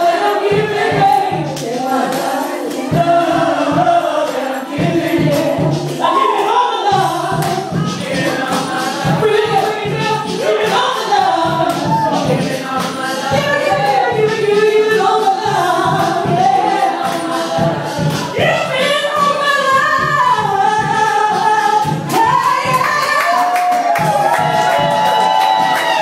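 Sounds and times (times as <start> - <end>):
music with a steady beat: 0.0 - 26.0
women singing into microphones: 0.0 - 26.0.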